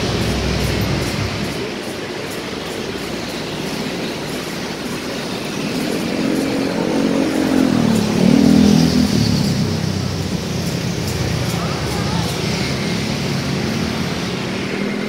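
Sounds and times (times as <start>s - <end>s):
street traffic: 0.0s - 15.0s
car passing close by: 5.6s - 15.0s.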